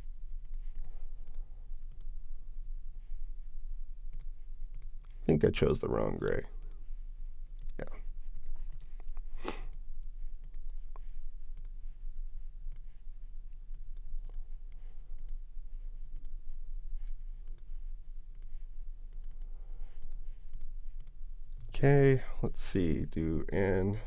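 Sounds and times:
low steady hum: 0.0s - 24.0s
computer mouse clicking: 0.4s - 2.1s, 4.1s - 5.2s, 7.6s - 9.8s, 10.4s - 11.8s, 12.7s - 12.9s, 13.6s - 15.4s, 16.1s - 16.4s, 17.4s - 17.7s, 18.3s - 21.7s.

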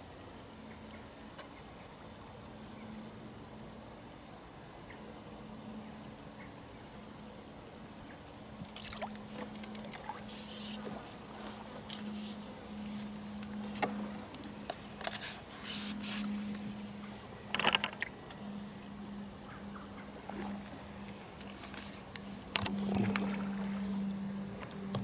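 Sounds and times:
faint low hum: 0.0s - 25.0s
fishing pole scrapes and clicks: 9.1s - 16.6s, 17.5s - 18.4s, 21.0s - 24.0s.

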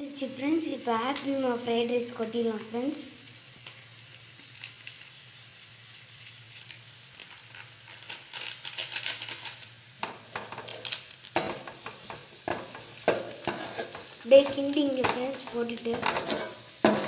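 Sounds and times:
vegetables sizzling in a pan: 0.0s - 17.0s
scrapes and knocks in a pan: 11.4s - 17.0s.

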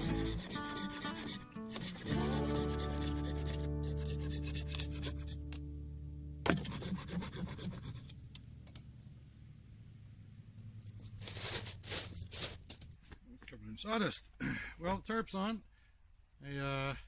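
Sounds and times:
hand saw rasping through wood: 0.0s - 5.4s, 6.5s - 8.2s
background music: 0.0s - 6.5s.

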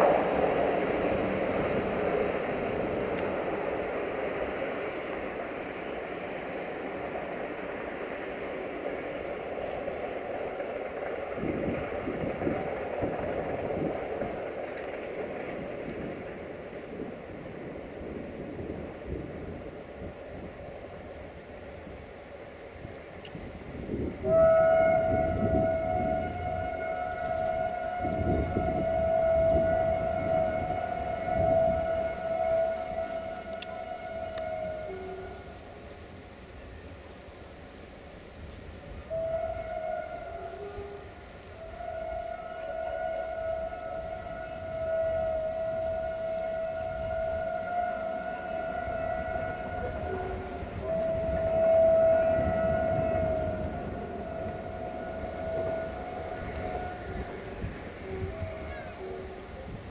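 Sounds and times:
locomotive air horn blast: 22.8s - 37.0s, 38.3s - 59.9s.

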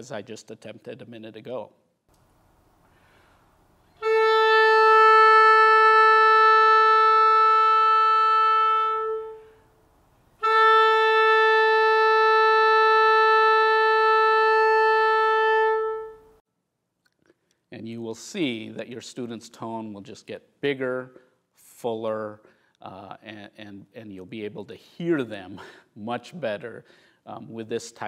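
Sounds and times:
clarinet long held notes: 3.9s - 9.7s, 10.4s - 16.4s.

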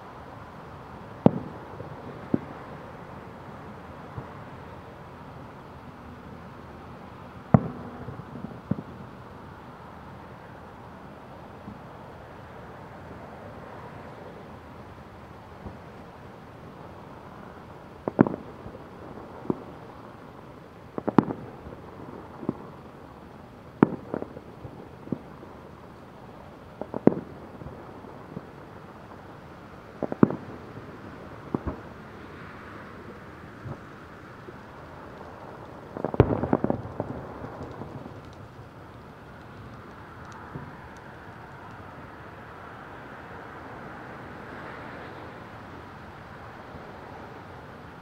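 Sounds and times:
steady background hiss: 0.0s - 48.0s
distant fireworks bangs: 1.2s - 3.0s, 7.4s - 9.2s, 18.0s - 20.1s, 20.9s - 22.9s, 23.8s - 25.8s, 26.7s - 41.8s
faint crackling: 33.0s - 42.0s.

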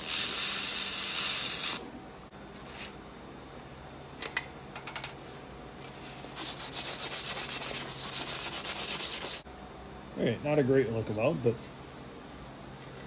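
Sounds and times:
scratchy rubbing on metal pipe: 6.4s - 9.4s.

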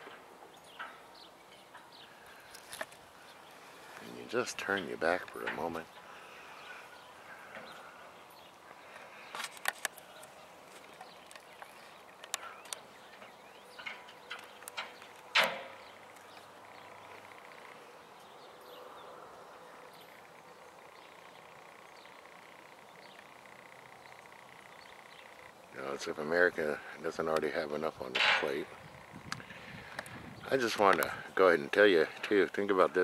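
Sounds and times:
outdoor background hiss: 0.0s - 33.0s
short sharp clicks and knocks: 13.8s - 15.8s.

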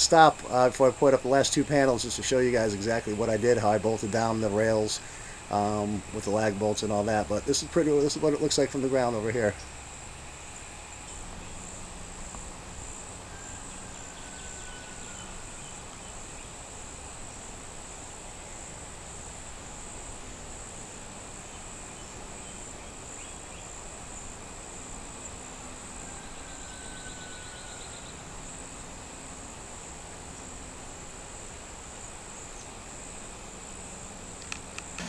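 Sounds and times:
crickets chirping: 0.0s - 35.0s.

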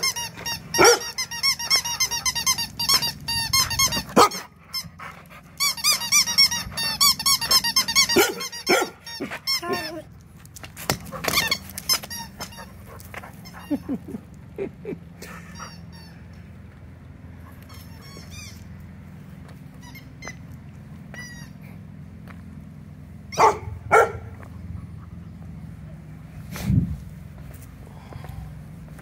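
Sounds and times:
squeaky toy squeaking: 0.0s - 5.0s, 5.6s - 10.1s, 11.1s - 13.9s, 15.5s - 16.3s, 17.6s - 18.8s, 19.8s - 21.7s
dog barking: 0.8s - 1.2s, 4.2s - 4.5s, 8.1s - 9.0s, 23.3s - 24.4s.

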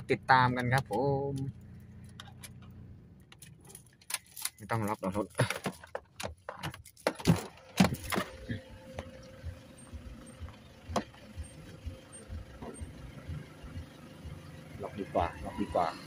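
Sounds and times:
truck door clicks and knocks: 5.5s - 8.4s.

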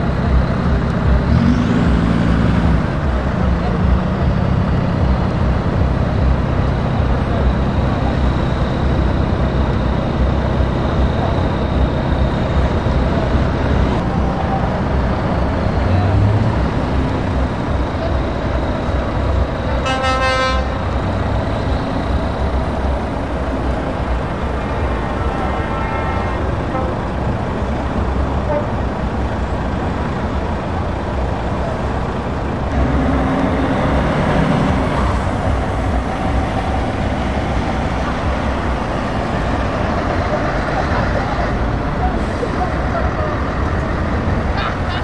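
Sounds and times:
lorry engines pulling away: 0.0s - 45.0s
truck horn blast: 19.8s - 21.0s, 25.0s - 27.1s, 28.4s - 28.8s.

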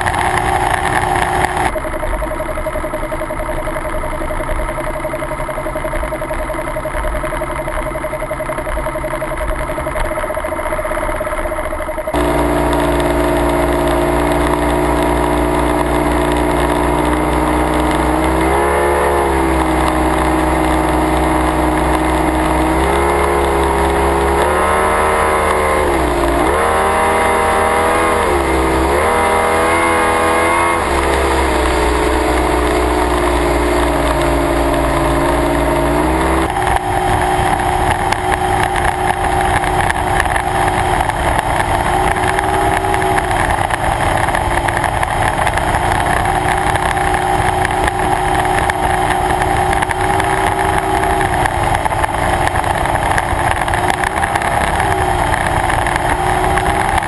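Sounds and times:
boat engine running hard: 12.1s - 57.0s.

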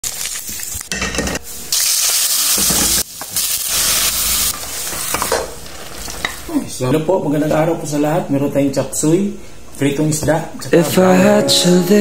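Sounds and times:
vegetables sizzling in a wok: 0.0s - 6.5s.

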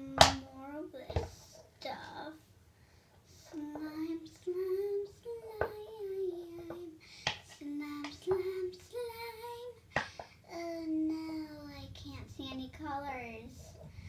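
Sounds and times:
girl singing: 0.0s - 2.4s, 3.3s - 14.0s.

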